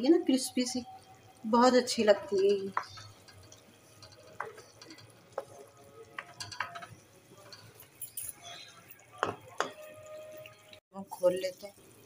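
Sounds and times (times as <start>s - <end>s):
spoon stirring thick sauce: 1.9s - 10.6s
spoon clinking against metal pan: 1.9s - 10.7s.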